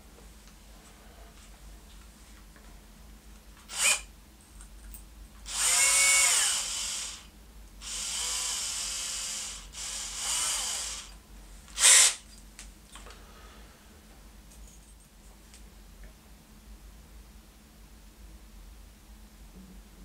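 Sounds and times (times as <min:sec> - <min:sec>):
cordless drill motor whining: 0:03.7 - 0:04.1, 0:05.5 - 0:12.2.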